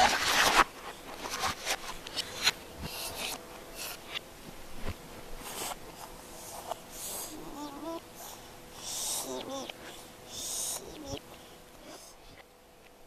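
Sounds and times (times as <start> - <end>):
child vocal sound: 7.1 - 12.4.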